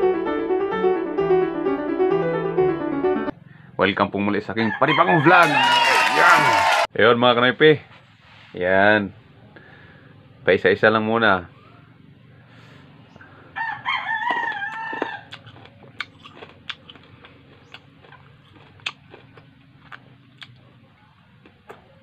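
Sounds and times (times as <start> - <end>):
rooster crowing: 4.6 - 6.9, 13.4 - 15.4
faint chewing clicks: 14.3 - 22.0.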